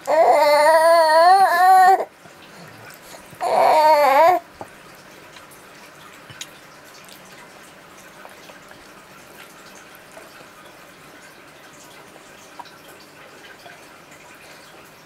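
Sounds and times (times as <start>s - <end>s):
baby wet mouth clicks and smacks: 6.2s - 7.4s.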